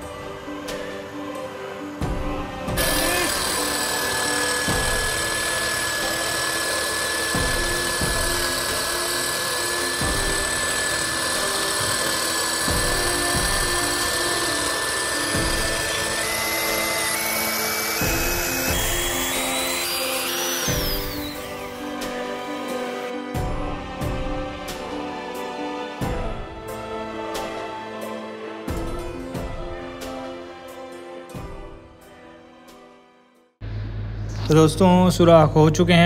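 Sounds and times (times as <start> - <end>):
power drill whining: 2.7 - 23.1
background music with beat: 20.7 - 25.4.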